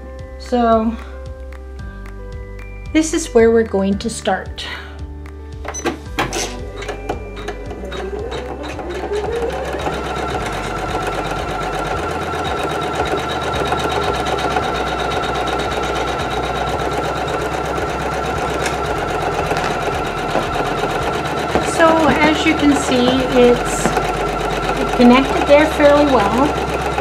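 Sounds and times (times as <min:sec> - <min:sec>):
embroidery machine stitching: 0:06.2 - 0:27.0.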